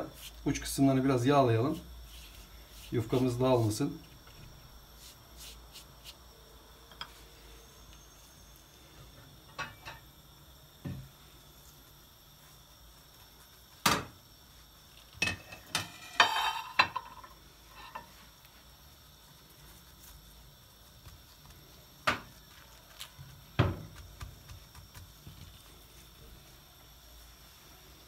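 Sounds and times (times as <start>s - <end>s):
kitchen knocks and clinks: 15.2s - 17.3s.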